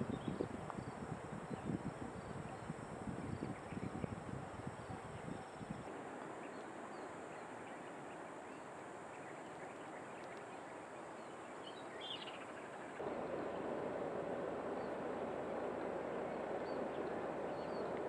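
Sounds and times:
wind hiss: 0:00.0 - 0:08.6.

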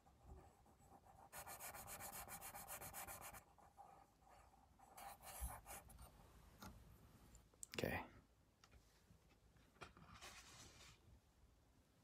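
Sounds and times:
pencil scratching on paper: 0:00.0 - 0:06.1.

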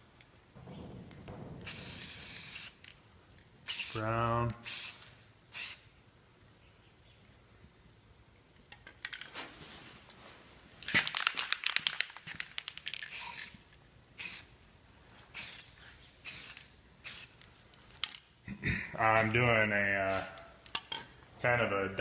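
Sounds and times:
spray can rattling: 0:00.8 - 0:03.0, 0:03.6 - 0:04.0, 0:04.6 - 0:05.9, 0:10.9 - 0:13.6, 0:14.2 - 0:14.5, 0:15.4 - 0:18.2, 0:20.1 - 0:20.9
spray paint hissing: 0:01.6 - 0:03.0, 0:03.6 - 0:05.9, 0:12.6 - 0:13.6, 0:14.2 - 0:14.5, 0:15.3 - 0:17.4, 0:20.0 - 0:20.6.

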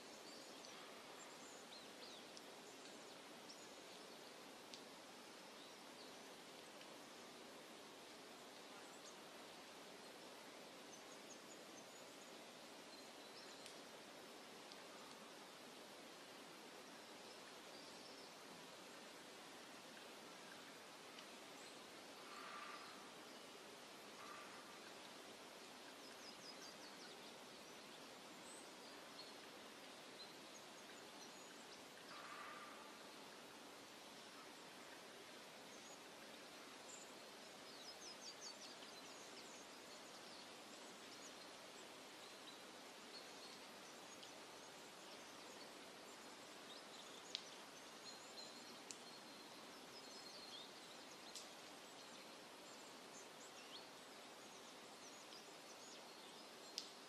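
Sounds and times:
steady hiss: 0:00.0 - 0:57.0.

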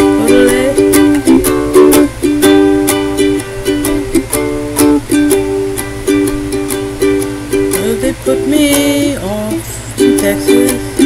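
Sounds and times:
ukulele strumming: 0:00.0 - 0:11.0.

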